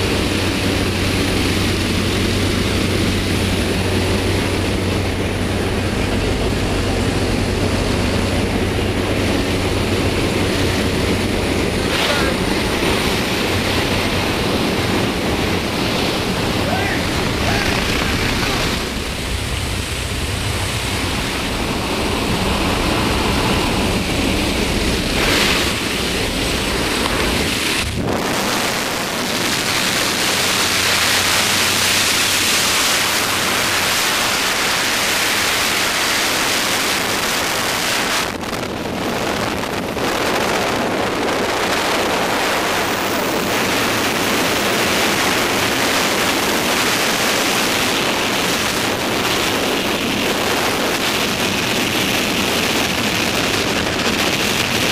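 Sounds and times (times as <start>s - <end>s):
low rumble: 0.0s - 34.6s
wind rushing over microphone: 0.0s - 54.9s.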